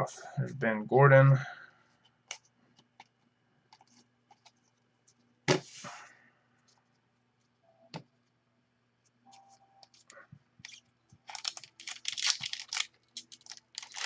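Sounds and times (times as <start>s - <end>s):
card rustle: 9.3s - 14.0s.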